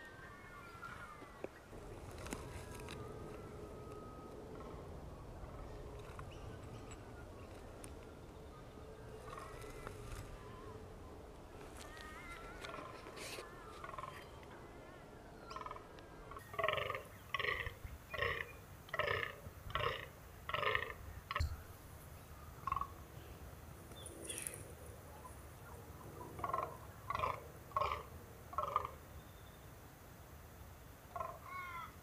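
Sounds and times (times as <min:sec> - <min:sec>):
deer croaking: 0:09.2 - 0:10.8, 0:15.5 - 0:21.4, 0:26.4 - 0:29.0.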